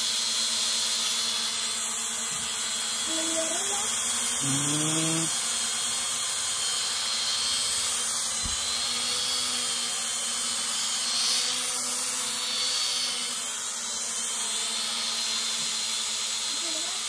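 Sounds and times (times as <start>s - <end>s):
drone propellers whining: 2.2s - 5.7s.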